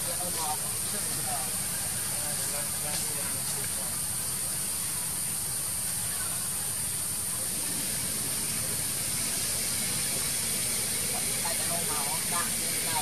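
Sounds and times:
high-pitched hiss: 0.0s - 13.0s.

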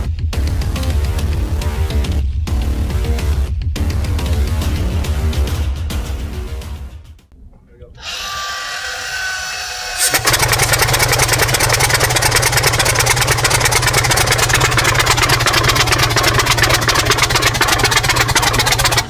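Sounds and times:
tank engine cranking: 9.8s - 19.0s.

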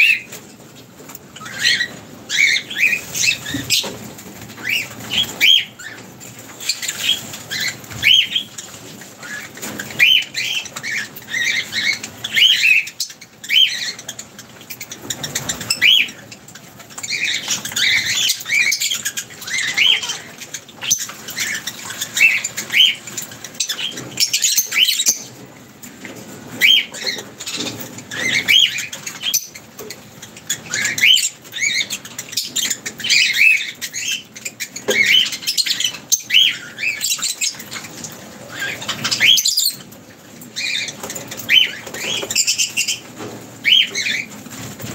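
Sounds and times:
birds chirping: 0.0s - 44.9s.

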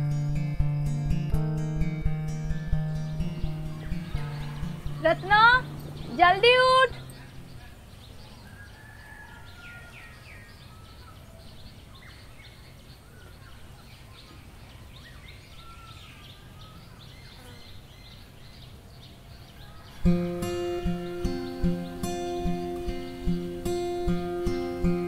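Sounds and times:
acoustic guitar music: 0.0s - 7.8s, 20.0s - 25.0s.

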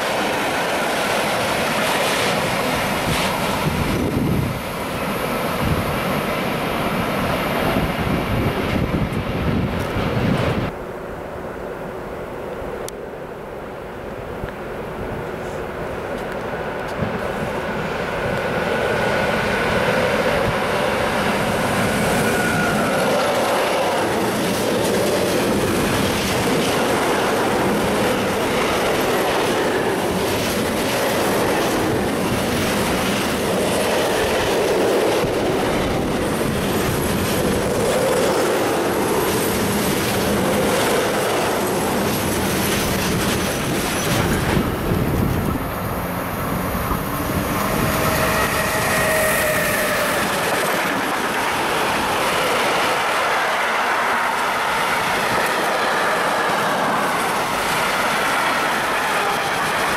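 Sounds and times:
train wheel squeal: 18.7s - 24.7s, 46.6s - 51.4s, 52.0s - 59.9s.

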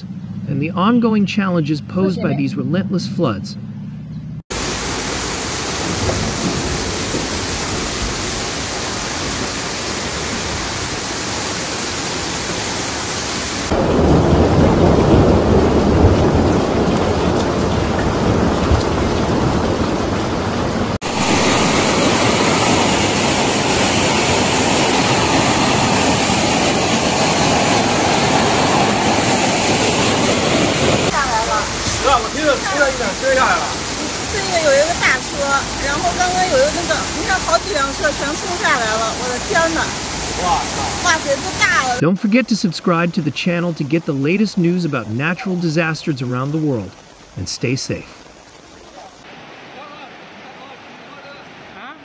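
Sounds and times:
floodwater rushing: 4.5s - 52.0s
heavy rain: 4.5s - 52.0s.

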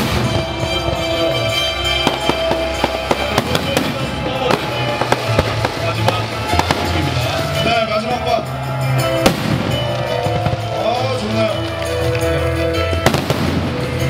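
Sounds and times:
fireworks bangs: 0.0s - 8.4s, 9.0s - 11.7s, 13.0s - 14.0s
music playing: 0.0s - 14.0s.

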